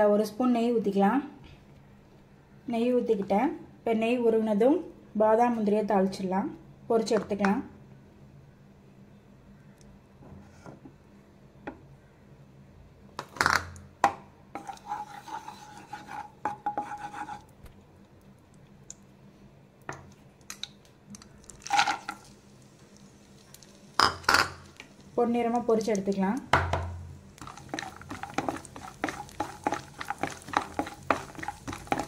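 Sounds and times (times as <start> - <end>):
kitchen clatter and scraping: 14.6 - 17.4, 27.4 - 32.0
knocks and rubbing in pan: 26.6 - 32.0.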